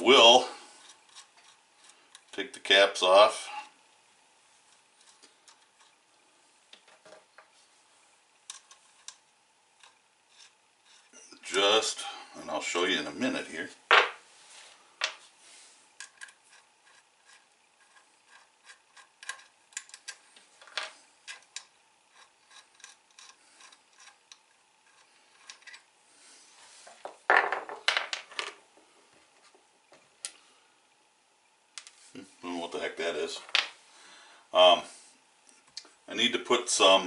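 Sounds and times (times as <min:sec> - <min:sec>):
small metal parts clicking: 0:16.0 - 0:25.9.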